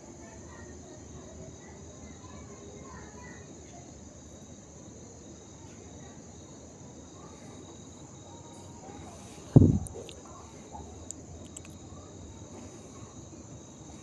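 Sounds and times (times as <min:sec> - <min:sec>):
insects chirring: 0:00.0 - 0:14.0
loud thump: 0:09.6 - 0:10.0.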